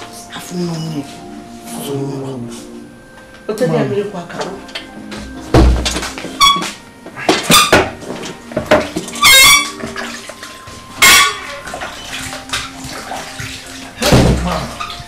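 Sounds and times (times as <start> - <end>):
dishes clinking: 4.4 - 15.0
water splashing: 7.4 - 15.0.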